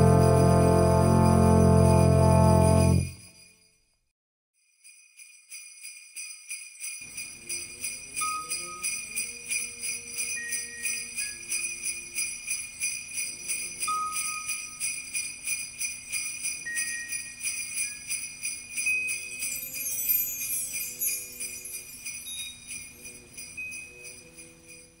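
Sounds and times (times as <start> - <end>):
high descending shimmer: 0.0 - 3.2
sleigh bells shaken: 0.0 - 3.9, 4.6 - 25.0.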